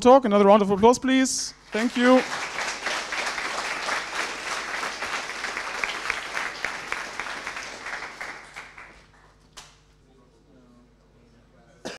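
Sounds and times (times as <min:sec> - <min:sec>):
audience applauding: 0:01.6 - 0:09.7.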